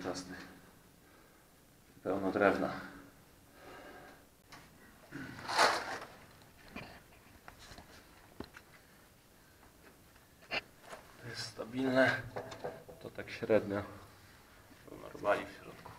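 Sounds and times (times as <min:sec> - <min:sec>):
scraping and rustling in pipe: 0:05.4 - 0:06.2.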